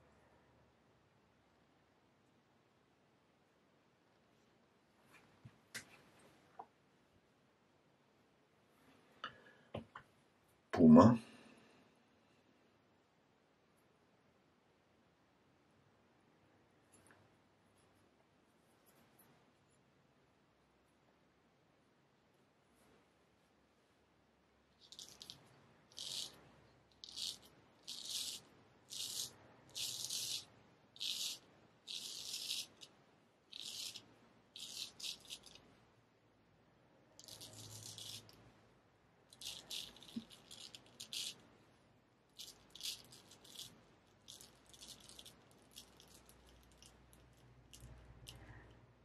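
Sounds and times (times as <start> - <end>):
razor scraping stubble: 33.5 - 35.6.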